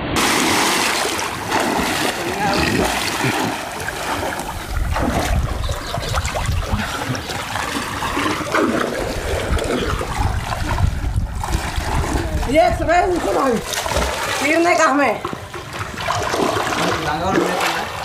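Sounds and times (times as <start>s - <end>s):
water splashing from swimmer: 0.0s - 18.0s.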